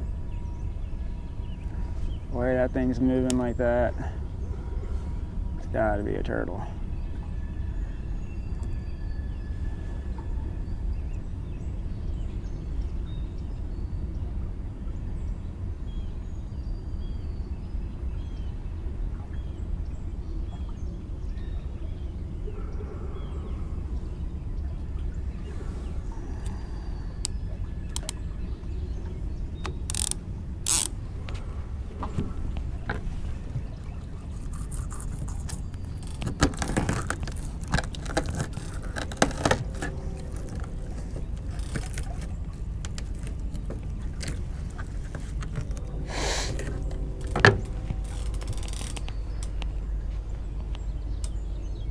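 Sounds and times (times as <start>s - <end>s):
low outdoor rumble: 0.0s - 51.9s
fishing reel clicks: 29.9s - 30.9s.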